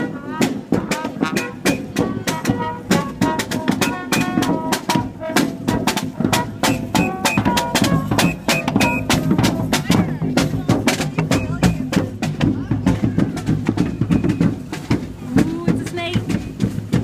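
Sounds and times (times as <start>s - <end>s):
brass melody: 0.0s - 9.9s
snare drum beating: 0.0s - 17.0s.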